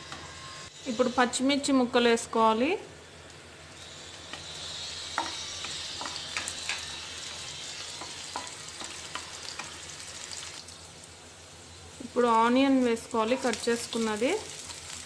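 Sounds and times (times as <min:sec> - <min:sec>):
food sizzling in hot oil: 0:03.0 - 0:15.0.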